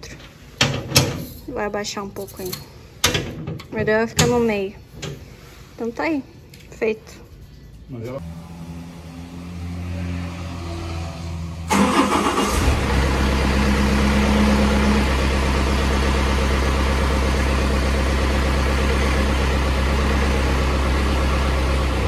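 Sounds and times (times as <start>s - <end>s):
diesel engine starting and idling: 8.2s - 22.0s.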